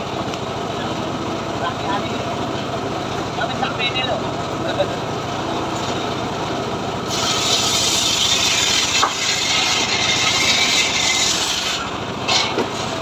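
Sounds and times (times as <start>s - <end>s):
circular saw engine running: 0.0s - 13.0s
saw blade ripping through log: 7.1s - 13.0s.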